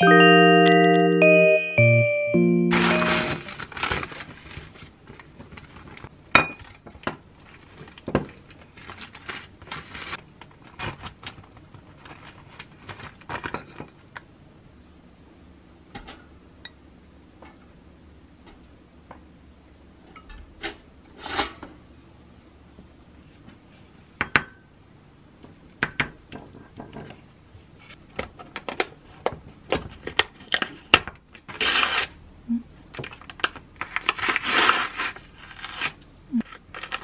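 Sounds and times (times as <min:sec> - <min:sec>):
plastic wrap crinkling: 0:03.4 - 0:06.1, 0:07.4 - 0:13.5.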